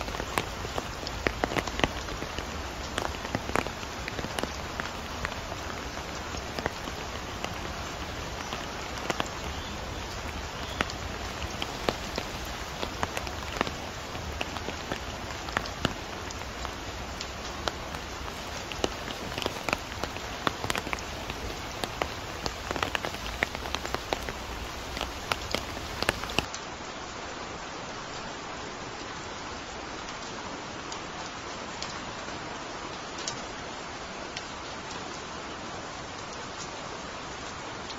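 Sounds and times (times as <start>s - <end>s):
close raindrops landing: 0.0s - 26.7s
steady rain falling: 0.0s - 37.9s.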